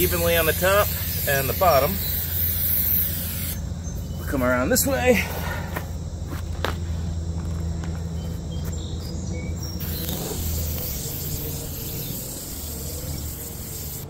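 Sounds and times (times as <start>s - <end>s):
aerosol spray hissing: 0.0s - 3.6s, 9.8s - 14.0s
birds chirping: 0.0s - 14.0s
insects trilling: 0.0s - 14.0s.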